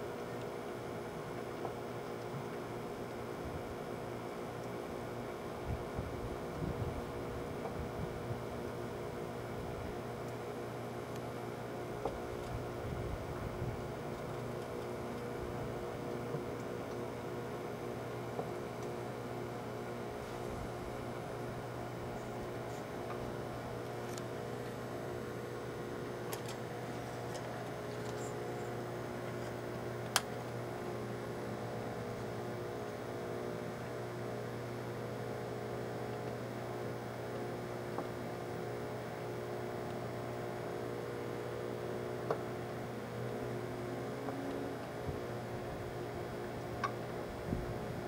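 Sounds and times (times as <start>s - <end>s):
microwave oven humming: 0.0s - 48.0s.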